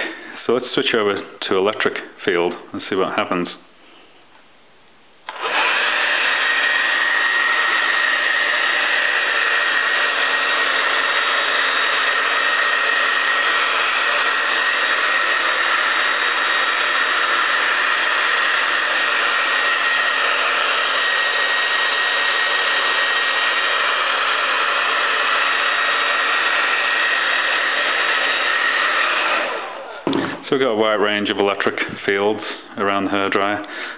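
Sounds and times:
hair dryer running: 0:05.3 - 0:30.5.

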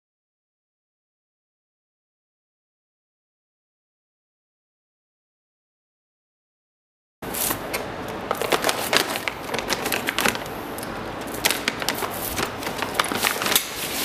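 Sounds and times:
plastic bag crinkling: 0:07.3 - 0:14.0.

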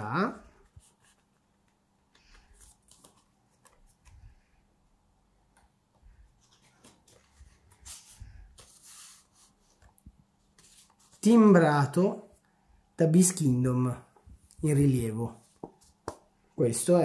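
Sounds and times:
paper and card rustling: 0:00.4 - 0:04.4, 0:06.1 - 0:11.6.

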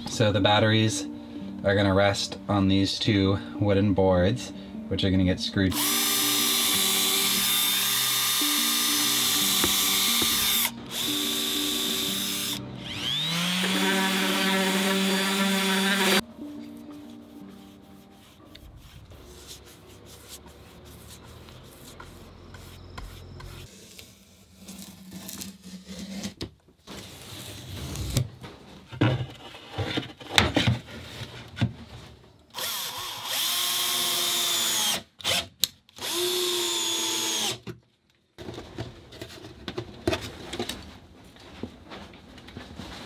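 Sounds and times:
power drill driving screws into wood: 0:05.8 - 0:16.2, 0:32.5 - 0:37.6.

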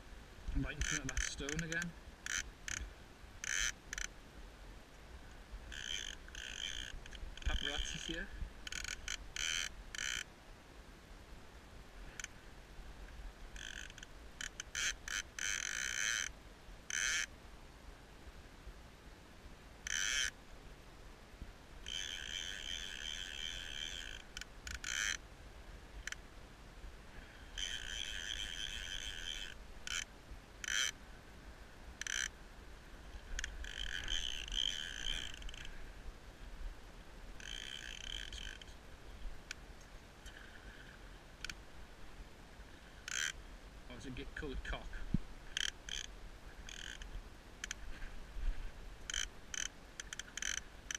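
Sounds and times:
fishing reel ratchet buzzing: 0:00.7 - 0:02.8, 0:03.4 - 0:04.1, 0:05.7 - 0:10.3, 0:13.6 - 0:16.3, 0:16.9 - 0:17.3, 0:19.9 - 0:20.3, 0:21.8 - 0:25.2, 0:27.5 - 0:31.0, 0:32.0 - 0:32.3, 0:33.4 - 0:35.7, 0:37.4 - 0:38.7, 0:43.1 - 0:43.4, 0:45.5 - 0:46.1, 0:46.7 - 0:47.8, 0:49.1 - 0:50.9.

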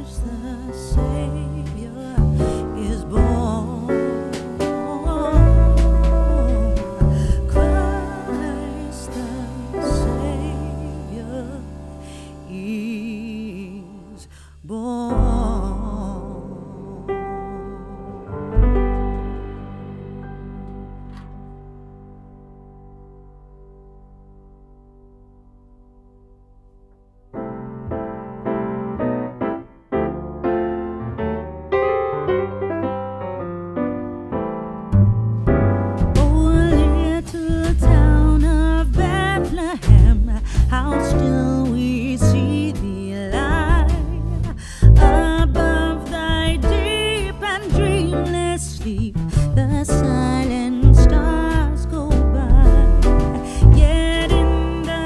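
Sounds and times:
piano notes: 0:00.0 - 0:14.2, 0:15.0 - 0:55.0
person singing: 0:00.0 - 0:21.1, 0:36.2 - 0:55.0
heavy bass: 0:00.0 - 0:29.2, 0:34.9 - 0:55.0.

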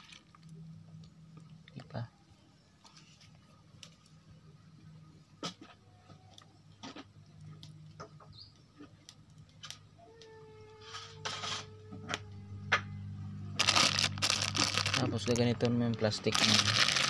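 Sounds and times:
plastic crinkle: 0:00.0 - 0:00.5, 0:13.6 - 0:17.0
low steady hum: 0:00.0 - 0:17.0
plastic bag rustling: 0:13.6 - 0:17.0.

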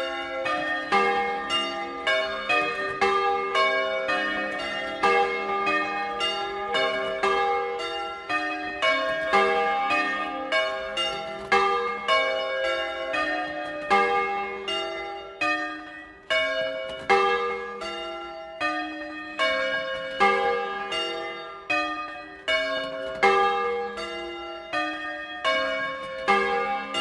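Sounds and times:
church bells ringing: 0:00.0 - 0:27.0.

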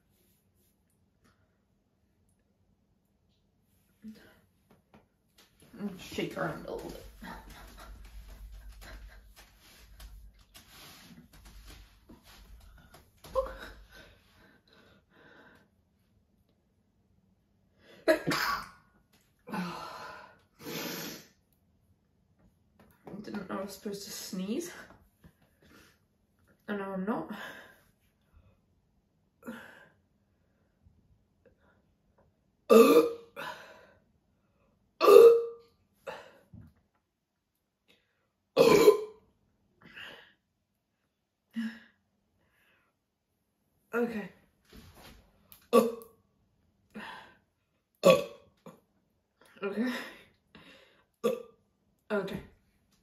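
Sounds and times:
woman burping: 0:32.7 - 0:33.5, 0:35.0 - 0:35.6, 0:38.6 - 0:39.2, 0:45.7 - 0:46.1, 0:48.0 - 0:48.8, 0:51.2 - 0:51.6.

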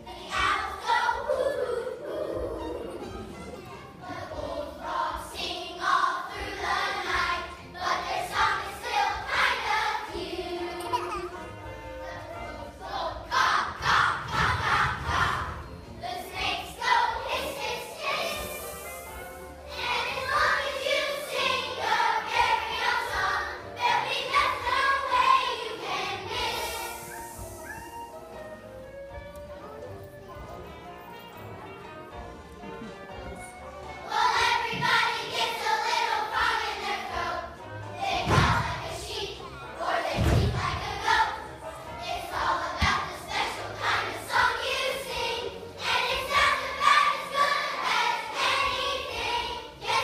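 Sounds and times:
children singing together: 0:00.0 - 0:28.2, 0:34.0 - 0:50.0.

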